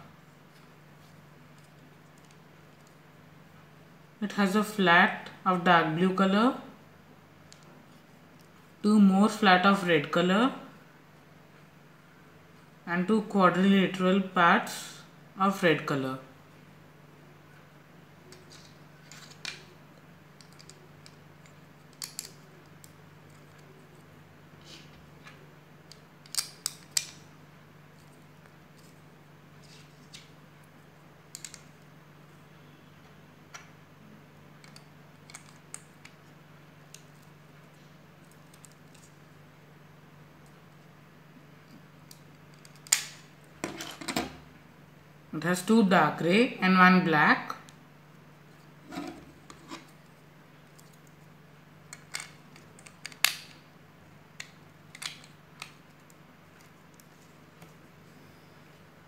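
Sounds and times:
faint low hum: 0:00.0 - 0:59.0
plastic bricks clicking: 0:21.9 - 0:22.4.

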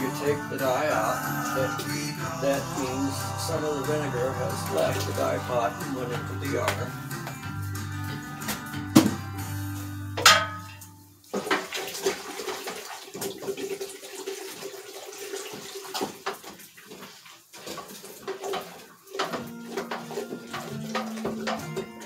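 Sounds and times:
water sloshing in a pot: 0:00.0 - 0:22.0
sharp metal clank: 0:10.2 - 0:10.9.

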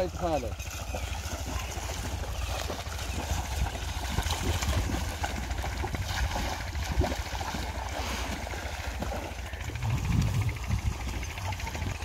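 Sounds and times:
feet splashing through water: 0:00.0 - 0:12.0
rope dragged through water: 0:00.7 - 0:11.9
low rumble: 0:03.6 - 0:12.0.

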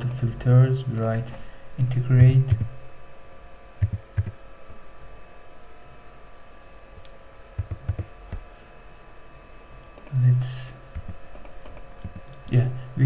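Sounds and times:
faint electrical hum: 0:00.0 - 0:13.0
soft keyboard keystrokes: 0:07.6 - 0:08.1.

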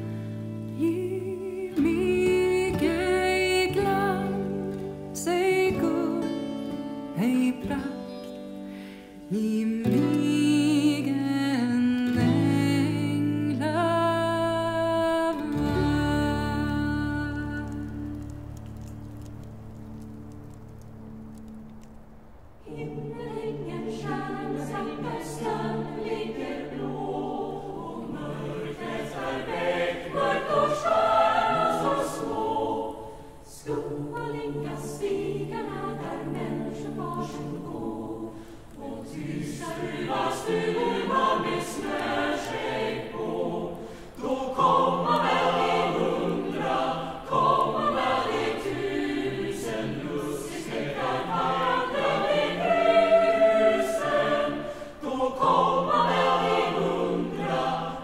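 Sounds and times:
choir singing: 0:00.0 - 0:08.2, 0:22.6 - 0:58.0.

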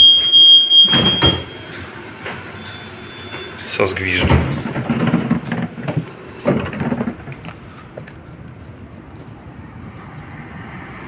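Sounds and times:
footsteps on paving: 0:07.3 - 0:10.8.

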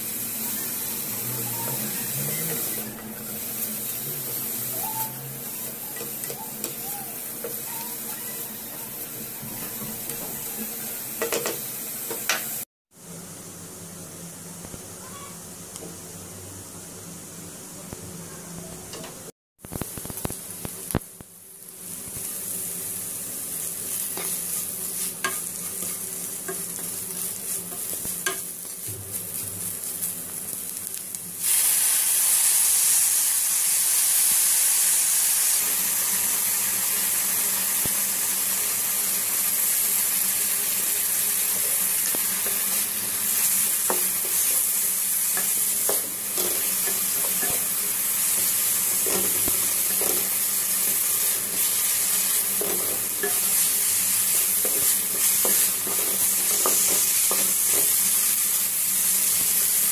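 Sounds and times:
vegetables sizzling in a wok: 0:00.0 - 0:59.9
spatula scraping and tapping: 0:45.4 - 0:47.7, 0:48.4 - 0:50.3, 0:54.6 - 0:58.0.

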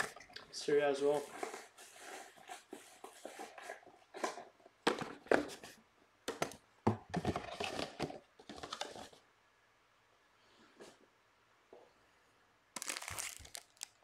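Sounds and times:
cardboard box and foil rustling: 0:12.8 - 0:14.0.

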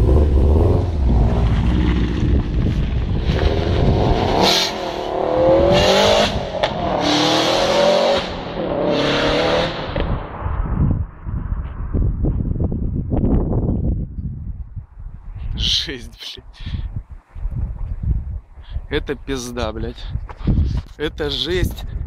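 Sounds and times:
car engine accelerating: 0:00.0 - 0:10.5.

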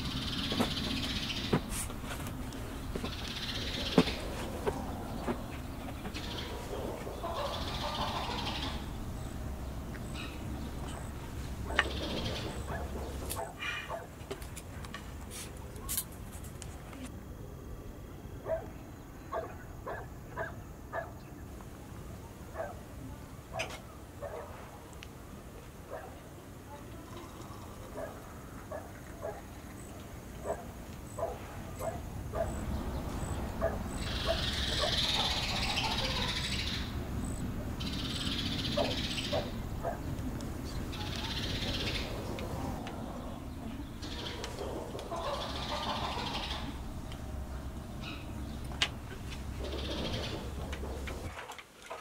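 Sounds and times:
dog barking: 0:06.3 - 0:08.8, 0:12.6 - 0:14.2, 0:18.4 - 0:21.2, 0:22.6 - 0:22.8, 0:23.5 - 0:24.7, 0:25.9 - 0:26.2, 0:28.0 - 0:29.5, 0:30.4 - 0:32.6, 0:33.6 - 0:36.4, 0:38.8 - 0:40.1, 0:44.1 - 0:46.7
faint bird or animal calls: 0:40.7 - 0:46.9.

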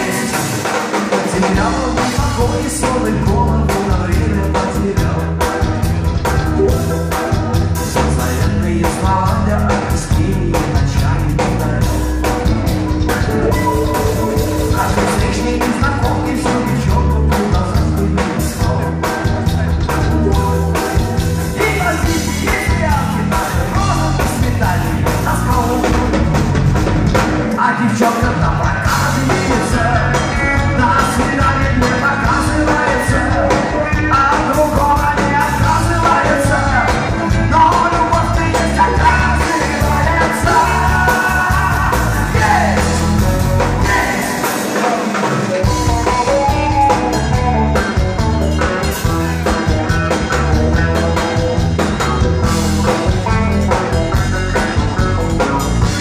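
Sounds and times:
person singing: 0:00.0 - 0:05.7, 0:13.1 - 0:26.2, 0:27.6 - 0:48.0
live rock band playing: 0:00.0 - 0:56.0.

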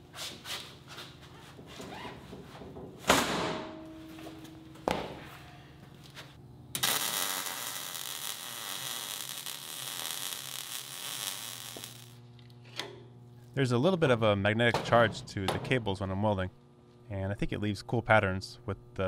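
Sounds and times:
welding arc crackling and hissing: 0:06.8 - 0:12.5.

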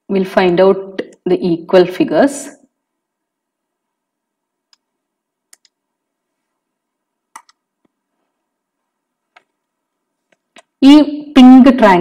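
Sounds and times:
faint computer mouse clicks: 0:04.7 - 0:04.9, 0:05.5 - 0:05.8.

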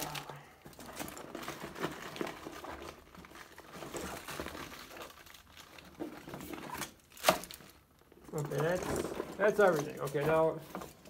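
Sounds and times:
plastic packets crinkling: 0:00.0 - 0:10.2.

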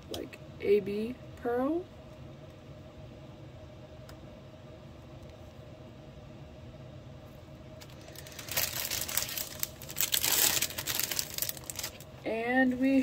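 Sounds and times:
faint steady hum: 0:00.0 - 0:13.0
plastic bag crinkling: 0:07.8 - 0:12.1.

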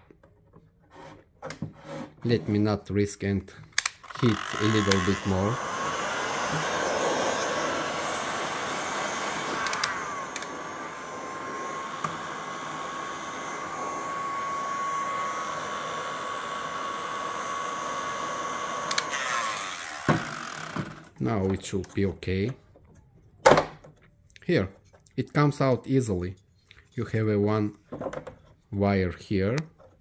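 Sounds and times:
heat gun blowing with whine: 0:04.1 - 0:20.9.

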